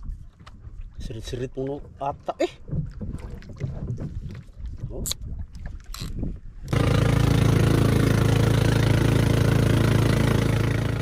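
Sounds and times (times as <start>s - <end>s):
boat engine running: 5.9s - 11.0s.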